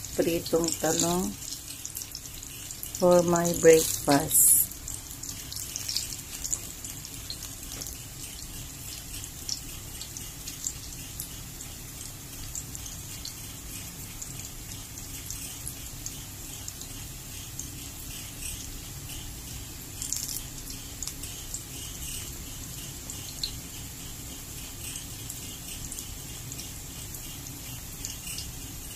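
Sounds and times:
oil popping and crackling: 0:00.0 - 0:22.4
food sizzling in oil: 0:00.0 - 0:28.9.

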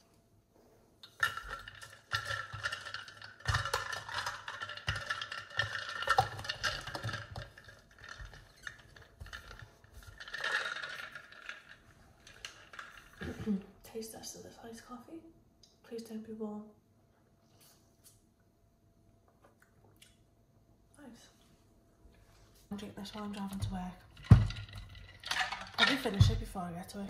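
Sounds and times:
steel bottle clinking and rattling: 0:01.0 - 0:13.3, 0:23.4 - 0:26.4.

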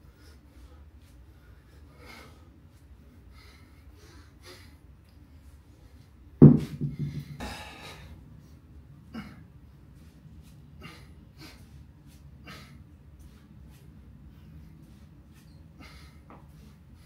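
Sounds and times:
man exhaling forcefully: 0:07.0 - 0:08.1.

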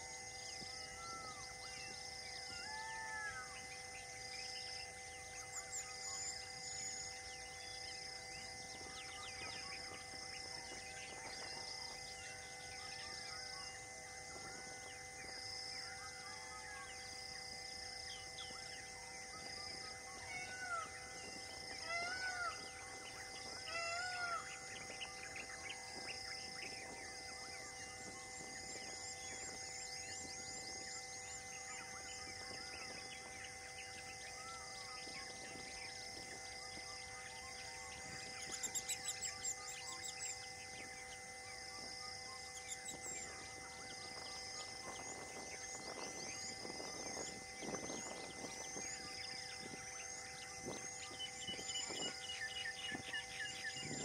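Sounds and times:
steady background hum: 0:00.0 - 0:54.0
birds calling: 0:18.1 - 0:40.8.

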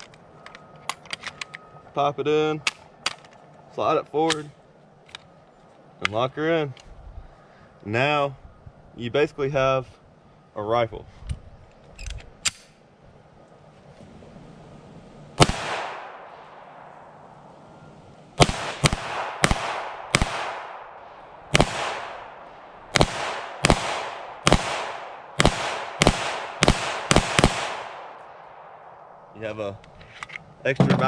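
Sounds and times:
gunshots with echo: 0:15.4 - 0:17.1, 0:18.4 - 0:28.8.

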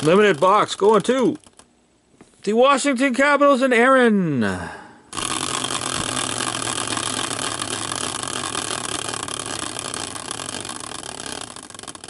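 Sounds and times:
prize wheel spinning and clicking: 0:00.0 - 0:01.7, 0:05.1 - 0:12.0.

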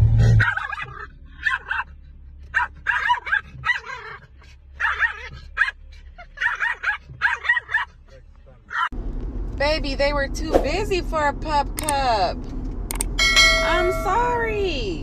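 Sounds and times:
low steady hum: 0:00.0 - 0:15.0
small dog yapping: 0:00.4 - 0:01.9, 0:02.5 - 0:05.8, 0:06.4 - 0:07.9.

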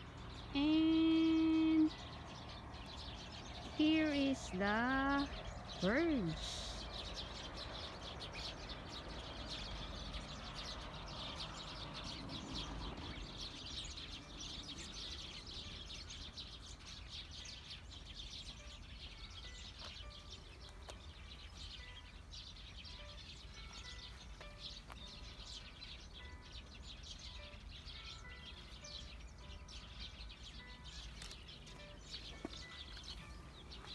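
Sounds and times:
small birds chirping: 0:00.0 - 0:33.9.

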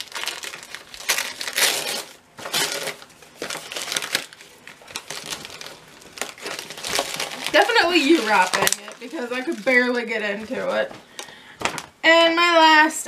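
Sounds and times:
wrapping paper crinkling and tearing: 0:00.0 - 0:10.8.

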